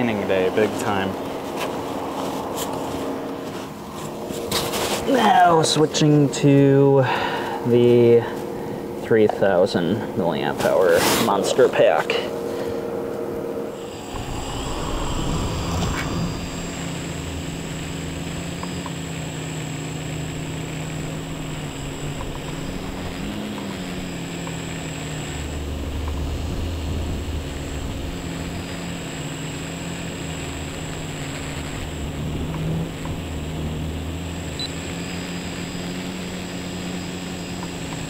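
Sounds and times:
quadcopter motors humming: 0:11.5 - 0:38.0.

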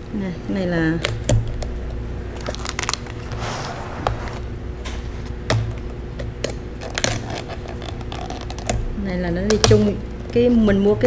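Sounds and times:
steady low hum: 0:00.0 - 0:11.0
plastic crinkling: 0:02.3 - 0:04.4, 0:06.8 - 0:08.8.

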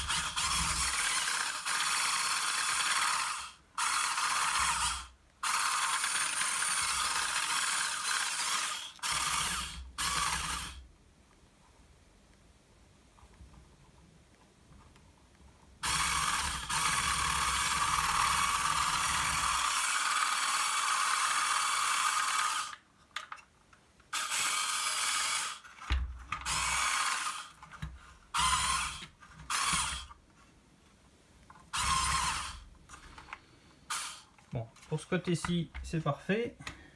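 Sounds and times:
small electric motor whirring: 0:00.0 - 0:10.8, 0:15.8 - 0:22.8, 0:24.1 - 0:27.7, 0:28.3 - 0:30.1, 0:31.7 - 0:32.6, 0:33.9 - 0:34.3.

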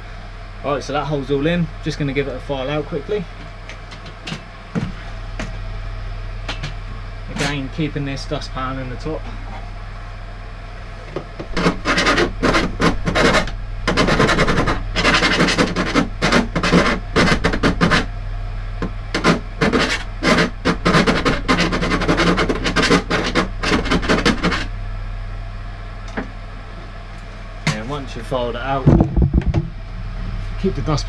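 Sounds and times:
hand file rasping metal: 0:11.5 - 0:18.1, 0:19.1 - 0:24.7.

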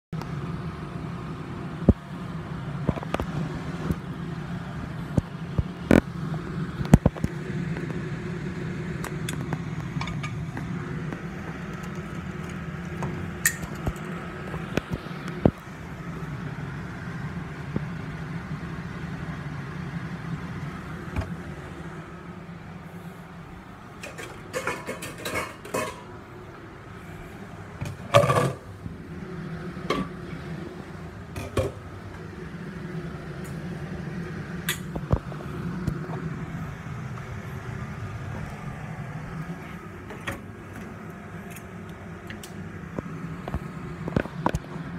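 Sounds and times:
low mechanical hum: 0:00.0 - 0:44.9
kitchenware clicks and knocks: 0:24.0 - 0:26.1.

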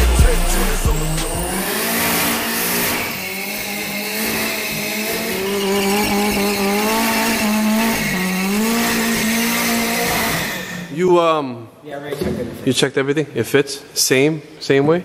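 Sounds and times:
car engine at high revs: 0:00.0 - 0:10.9.

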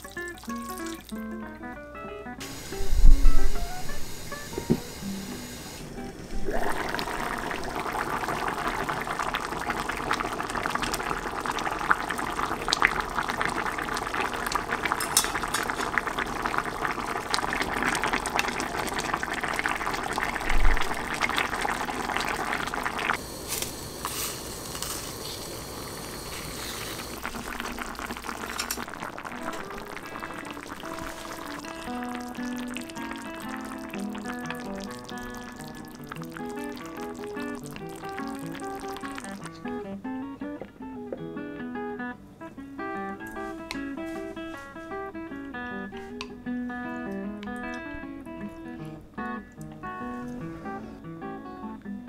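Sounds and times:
stew boiling in a pot: 0:00.0 - 0:01.3, 0:02.4 - 0:39.9, 0:43.1 - 0:45.1.

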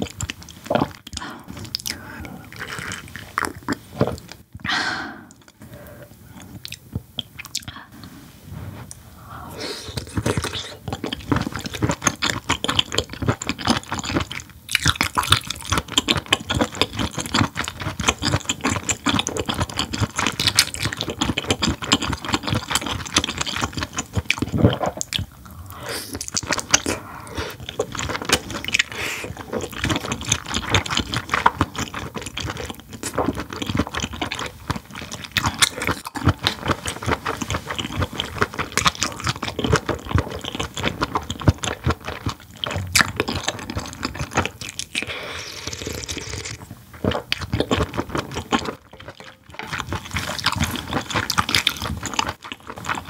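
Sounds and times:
wet chewing mouth sounds: 0:00.0 - 0:08.1, 0:08.7 - 0:53.0.

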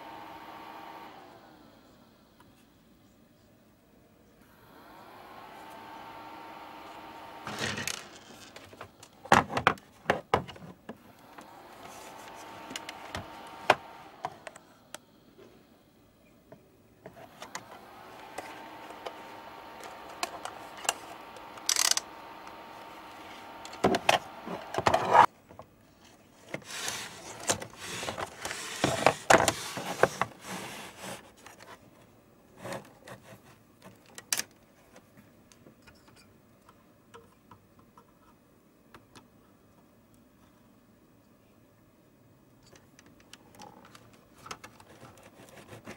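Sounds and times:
small motor humming: 0:00.0 - 0:02.8, 0:04.4 - 0:09.4, 0:11.0 - 0:16.0, 0:17.0 - 0:25.3
clicks and knocks of parts handled: 0:19.8 - 0:22.7.

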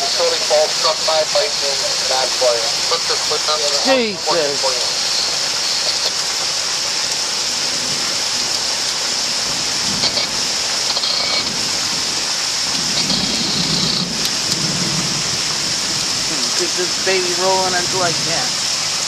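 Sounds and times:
heavy rain pouring: 0:00.0 - 0:19.0
low thunder rumble: 0:07.6 - 0:18.6.

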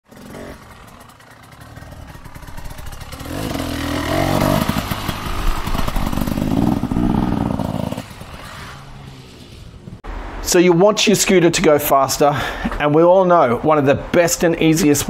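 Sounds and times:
engine revving: 0:00.0 - 0:10.0.

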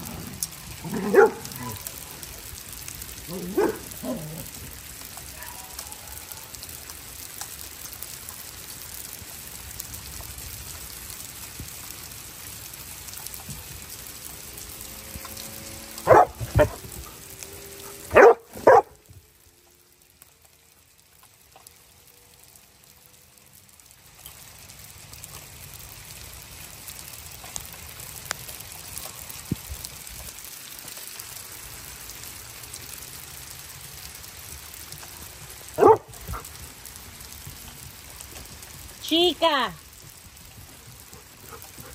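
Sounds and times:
hail falling on wooden deck: 0:00.0 - 0:41.9
dog barking: 0:00.9 - 0:01.8, 0:03.3 - 0:04.2, 0:16.0 - 0:16.8, 0:18.1 - 0:19.0, 0:35.8 - 0:36.4.

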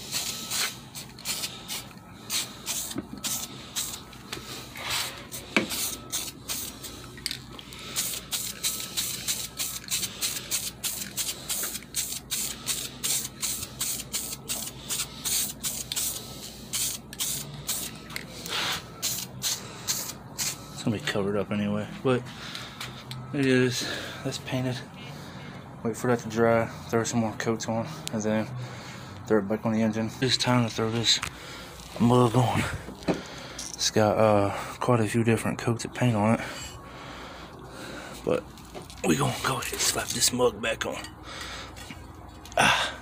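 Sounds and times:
spray can hissing: 0:00.0 - 0:04.0, 0:04.8 - 0:06.9, 0:07.9 - 0:20.6.

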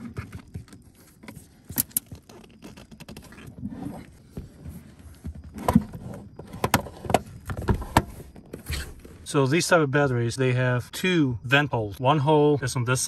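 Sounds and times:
plastic battery case scraping: 0:00.0 - 0:09.3.

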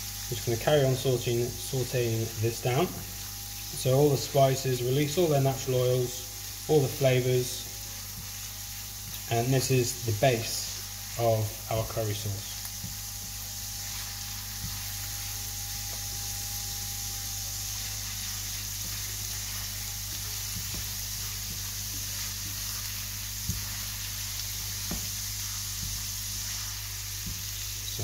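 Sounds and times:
spices sizzling in oil: 0:00.0 - 0:28.0
steady low hum: 0:00.0 - 0:28.0
spatula scraping and ticking: 0:12.6 - 0:27.9.

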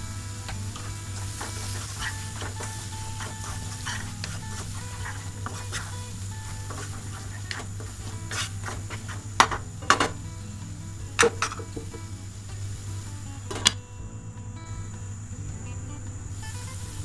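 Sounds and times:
wooden spatula scraping paste in pan: 0:01.3 - 0:09.6.

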